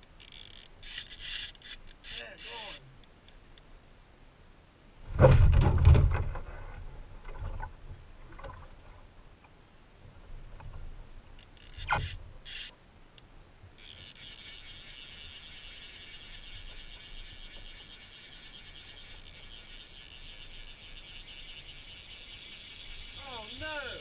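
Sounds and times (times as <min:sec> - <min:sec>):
fly reel drag buzzing: 0:00.1 - 0:02.8, 0:11.4 - 0:12.7, 0:13.8 - 0:24.0
thump: 0:05.1 - 0:06.5.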